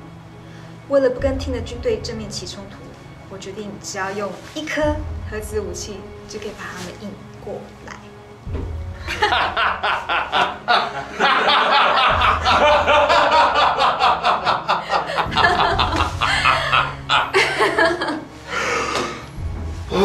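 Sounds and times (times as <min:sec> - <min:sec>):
background music: 0:00.0 - 0:20.0
people laughing hard: 0:09.0 - 0:19.0.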